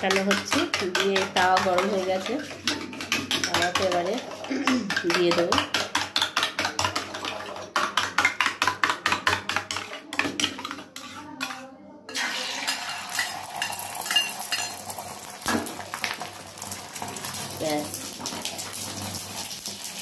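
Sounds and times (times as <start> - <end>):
spoon beating egg in steel bowl: 0.0 - 15.1
egg sizzling on hot pan: 12.2 - 20.0.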